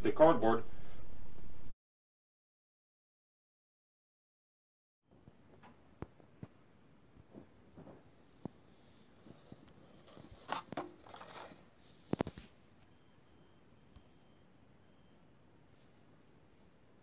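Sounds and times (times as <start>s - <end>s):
plastic packaging crinkling: 9.2s - 12.4s.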